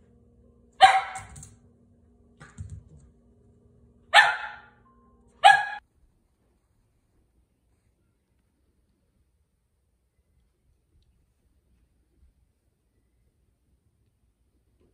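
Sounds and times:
puppy barking: 0.8 - 1.4, 4.1 - 4.8, 5.4 - 5.8.

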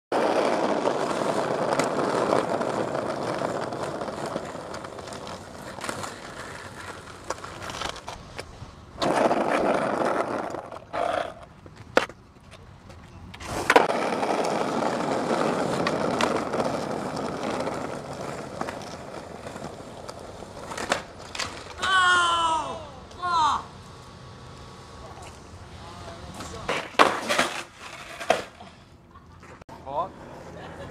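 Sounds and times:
skateboard wheels rolling on asphalt: 0.1 - 30.9
skateboard clacking on ground: 0.2 - 21.9, 26.2 - 28.8.

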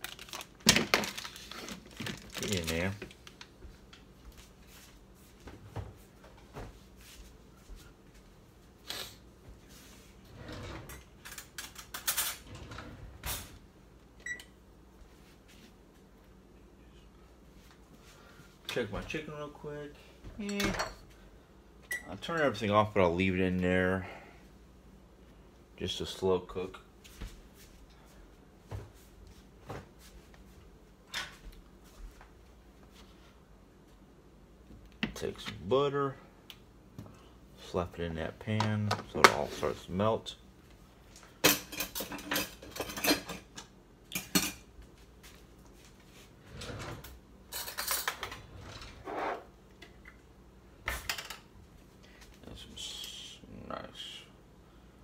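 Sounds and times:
pans and utensils clattering: 41.4 - 43.5.

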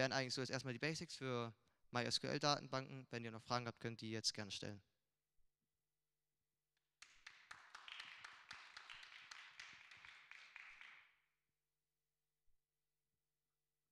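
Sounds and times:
faint audience applause: 7.0 - 11.1.

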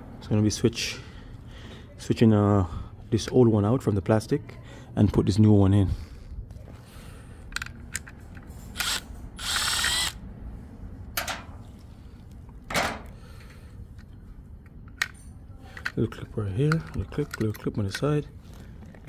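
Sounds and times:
cordless drill whirring: 8.8 - 10.2.

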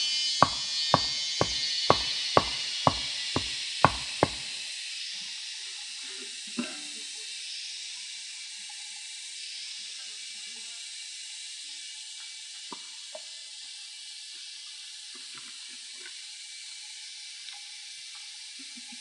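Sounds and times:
sharp wooden knock: 0.0 - 4.6
steady high hiss: 0.0 - 6.2.

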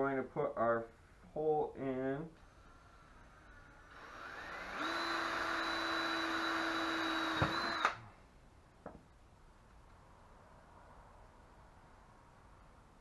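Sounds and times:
cordless drill boring plastic pipe: 2.4 - 8.0
drill click: 3.9 - 8.0.

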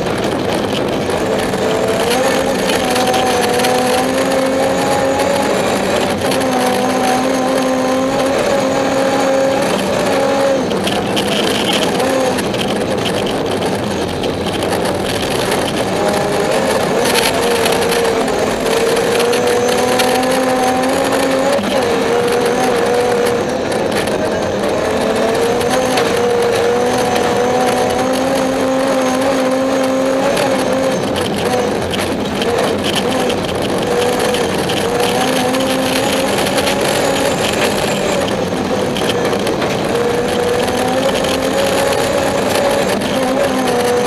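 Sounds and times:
car engine revving: 0.0 - 44.0
tyre and road noise: 0.0 - 44.0.

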